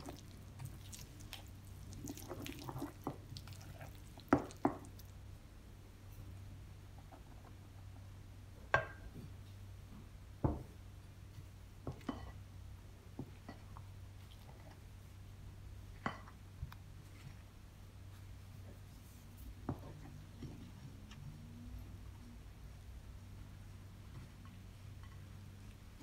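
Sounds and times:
wooden spoon stirring dough: 0:00.0 - 0:05.2, 0:16.0 - 0:26.0
low steady hum: 0:00.0 - 0:26.0.

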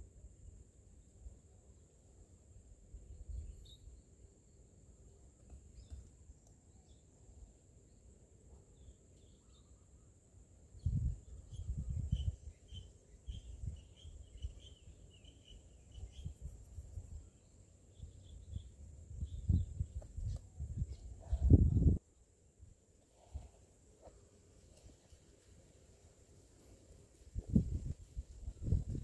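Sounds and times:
faint bird chirps: 0:03.1 - 0:04.6, 0:05.2 - 0:22.3.

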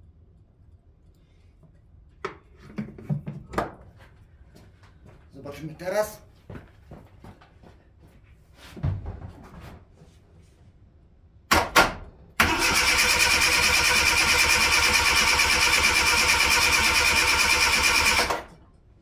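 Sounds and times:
starter motor cranking engine: 0:12.4 - 0:18.5.

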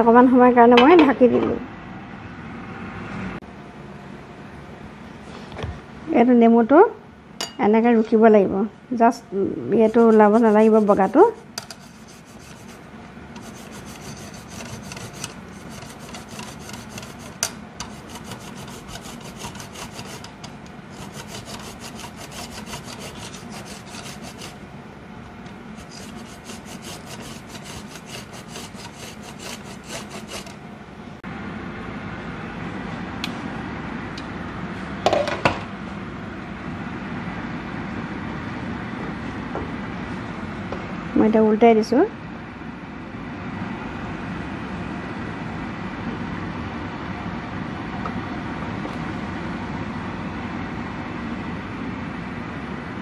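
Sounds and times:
lime grated on metal grater: 0:09.8 - 0:24.6, 0:25.7 - 0:30.6.

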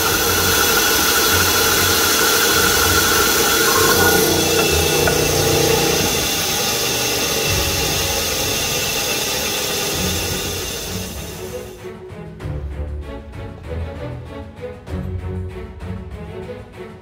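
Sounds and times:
band saw cutting wood: 0:00.0 - 0:11.7.

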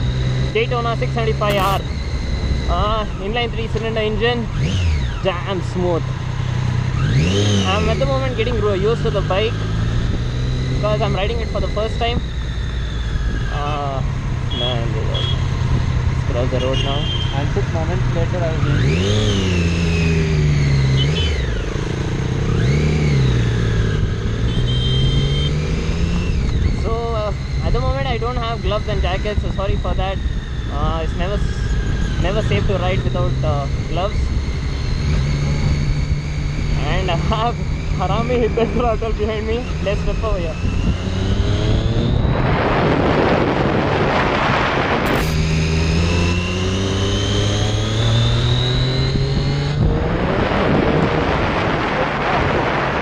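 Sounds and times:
motorcycle engine revving: 0:00.0 - 0:53.0
short high beeps: 0:01.5 - 0:01.8
loud rushing noise: 0:41.5 - 0:45.9.

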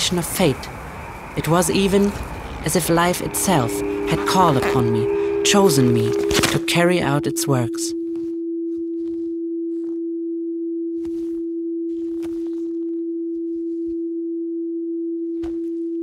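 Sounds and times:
steady electronic tone: 0:00.0 - 0:08.6.

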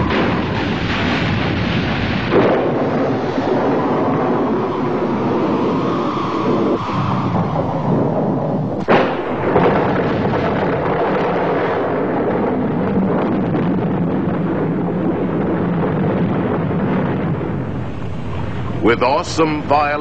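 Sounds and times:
sharp crash: 0:00.0 - 0:04.5, 0:08.8 - 0:11.5
rain: 0:00.0 - 0:20.0
rushing wind: 0:00.0 - 0:20.0.

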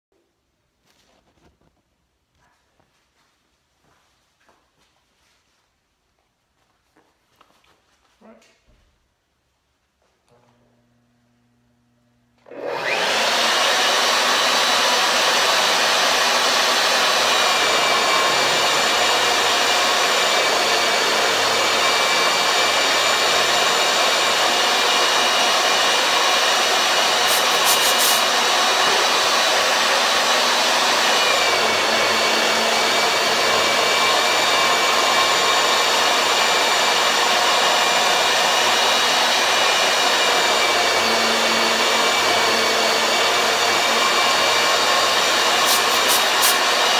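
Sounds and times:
drill press motor whining: 0:12.4 - 0:46.9.

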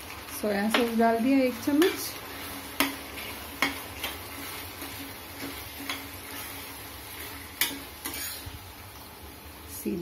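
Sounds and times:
vegetables sizzling in a pan: 0:00.0 - 0:10.0.

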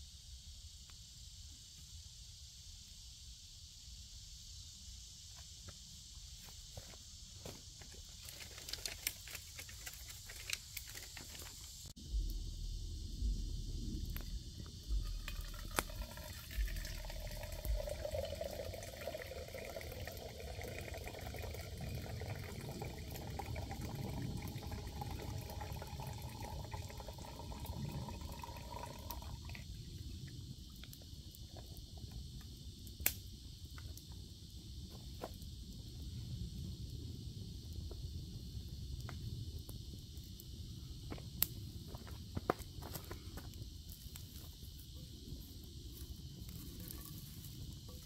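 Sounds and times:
campfire crackling and popping: 0:08.2 - 0:11.9, 0:13.8 - 0:29.6, 0:30.7 - 0:34.0, 0:45.9 - 0:48.0
water pouring into metal pot: 0:15.0 - 0:29.6.

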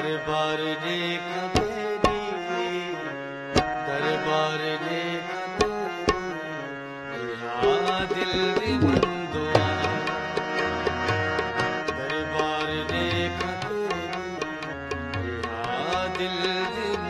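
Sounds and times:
harmonium chords: 0:00.0 - 0:17.0
tabla strokes: 0:03.6 - 0:03.9, 0:07.6 - 0:17.0.

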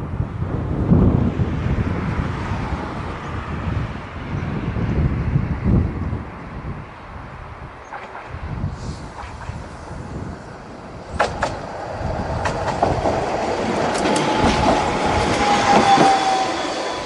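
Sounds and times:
tram wheels clicking over rail joints: 0:07.8 - 0:08.4, 0:09.1 - 0:09.9, 0:10.6 - 0:17.0
tram motor whine: 0:09.1 - 0:17.0.

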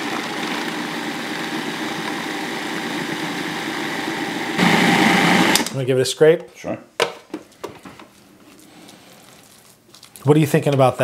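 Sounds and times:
food processor running: 0:00.0 - 0:05.7.

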